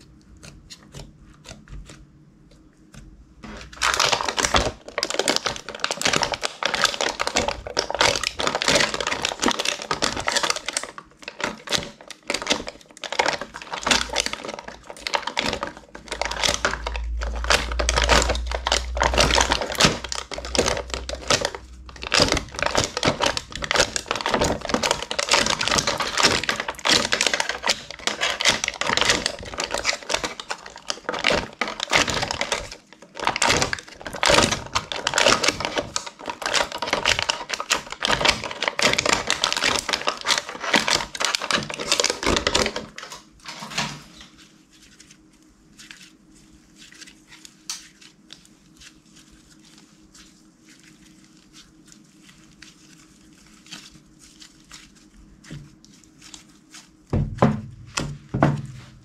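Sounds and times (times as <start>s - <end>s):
low rumble of handling: 15.9s - 29.8s.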